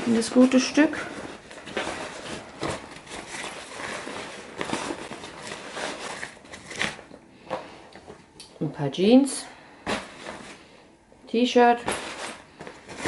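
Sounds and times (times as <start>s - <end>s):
nylon bag rustling: 0.0s - 7.1s.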